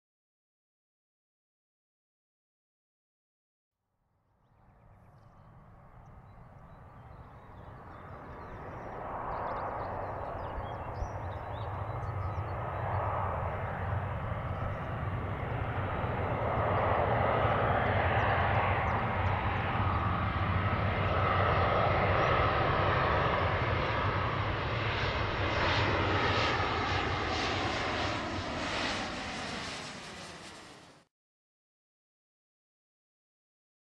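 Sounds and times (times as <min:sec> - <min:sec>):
jet engine low rumble and rushing: 0:04.5 - 0:31.1.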